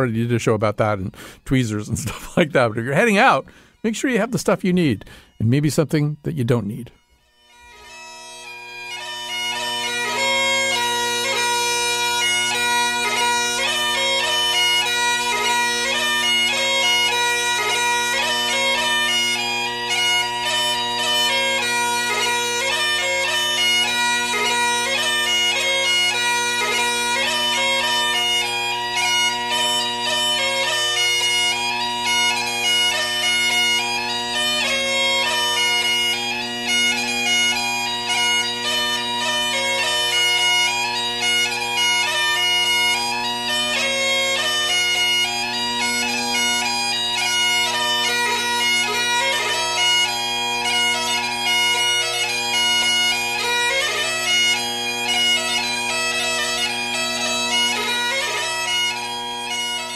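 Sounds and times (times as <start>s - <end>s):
bagpipes playing a tune: 0.0s - 59.9s.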